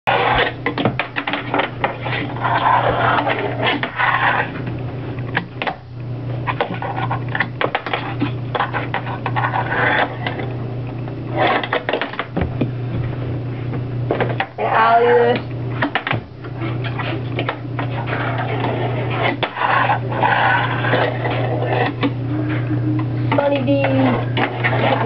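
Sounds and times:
low hum: 0.1 - 25.0.

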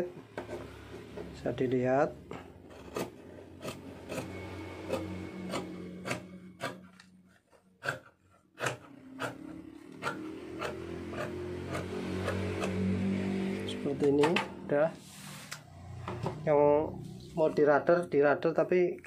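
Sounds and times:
scissors snipping fabric: 2.7 - 7.1, 7.8 - 13.0.

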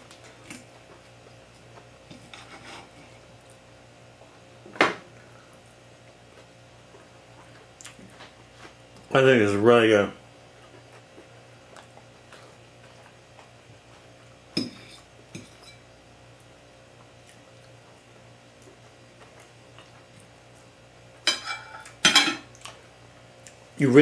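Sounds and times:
faint steady hum: 0.0 - 24.0
fork clinking on ceramic plate: 21.3 - 22.4.

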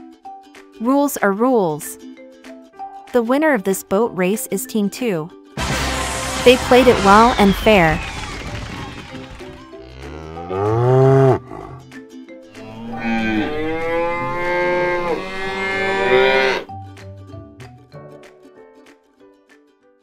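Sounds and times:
light background music: 0.0 - 8.0, 9.1 - 20.0
cows mooing: 9.8 - 11.8, 12.6 - 16.7.

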